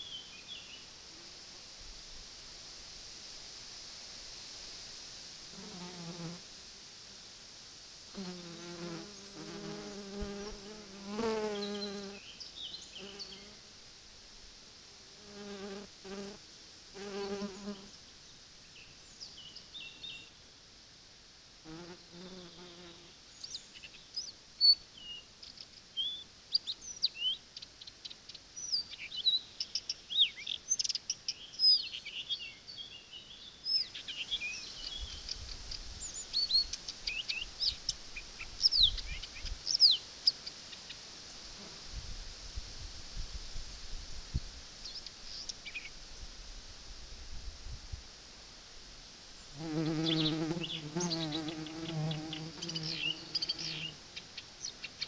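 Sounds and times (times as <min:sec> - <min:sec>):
flying insect buzzing: 0:05.5 - 0:06.5, 0:08.1 - 0:13.7, 0:15.0 - 0:18.0, 0:21.6 - 0:23.2, 0:49.4 - 0:54.3.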